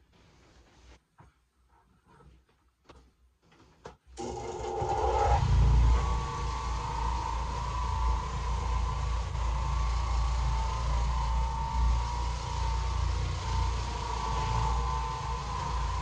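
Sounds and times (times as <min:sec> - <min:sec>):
floor machine humming and whining: 0:04.2 - 0:16.0.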